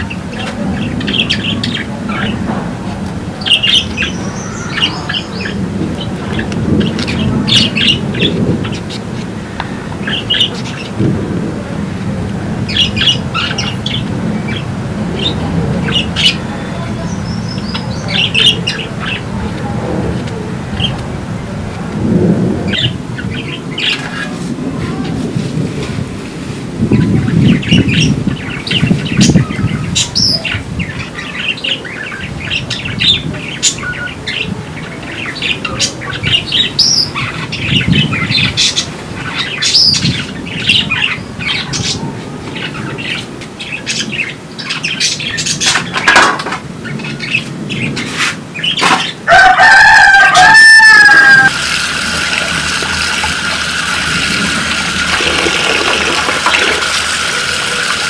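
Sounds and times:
water running from tap: 51.5 - 58.0.

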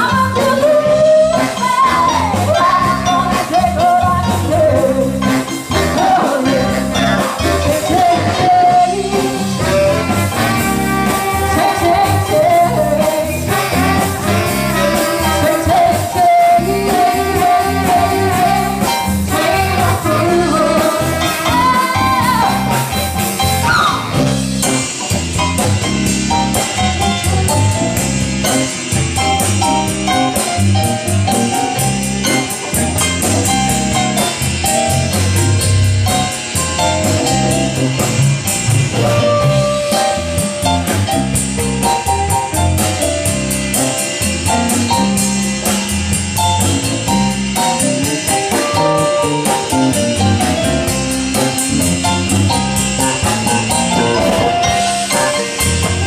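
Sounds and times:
woman singing lead: 0.0 - 24.2
soul band playing: 0.0 - 56.0
horn section: 1.0 - 3.9, 4.6 - 42.9.

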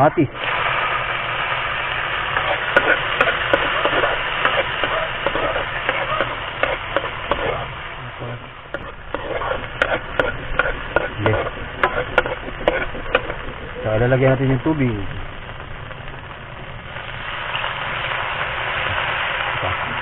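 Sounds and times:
vegetables sizzling in oil: 0.0 - 20.0
metal spoon scraping a wok: 2.4 - 7.7, 8.7 - 13.6.

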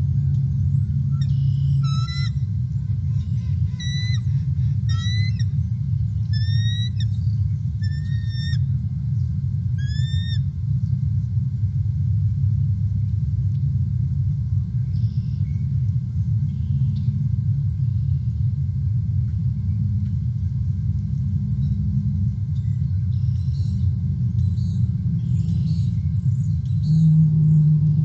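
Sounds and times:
steady low rumble: 0.0 - 28.0
eagle high-pitched chirping calls: 1.1 - 5.6, 6.2 - 8.7, 9.8 - 10.5.

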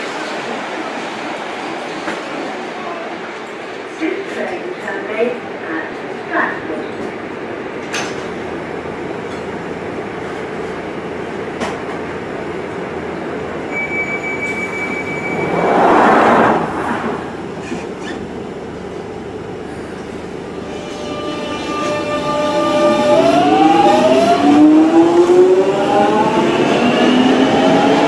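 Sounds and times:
train rolling on rails: 0.0 - 28.0
train passing: 9.8 - 28.0
high wheel squeal: 13.7 - 16.1.

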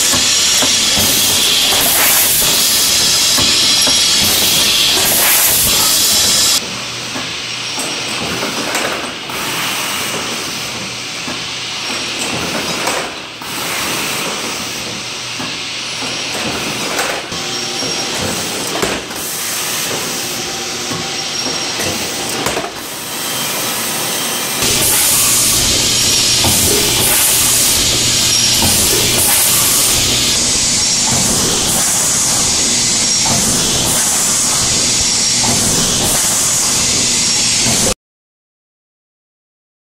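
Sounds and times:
compressed air hissing: 0.0 - 6.6, 23.0 - 38.0.

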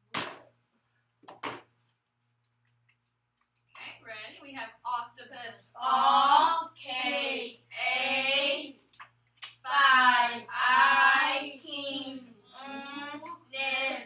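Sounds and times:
children chanting in unison: 5.8 - 8.8, 9.7 - 14.0.

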